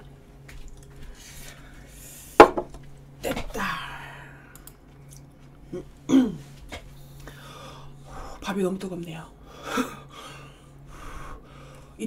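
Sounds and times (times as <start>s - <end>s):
bowl knocking on table: 2.4s - 2.8s.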